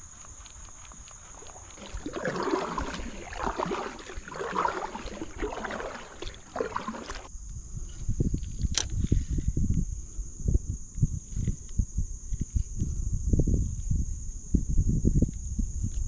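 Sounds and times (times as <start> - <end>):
kayak paddle splashing water: 0.8 - 7.3.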